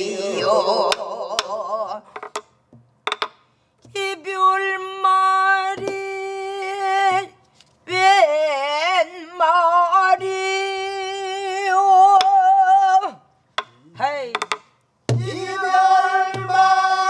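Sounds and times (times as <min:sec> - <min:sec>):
drumstick clicking on wood: 0:02.2 - 0:03.4, 0:13.6 - 0:14.8
woman singing: 0:03.9 - 0:13.2
barrel drum strokes: 0:15.1 - 0:17.0.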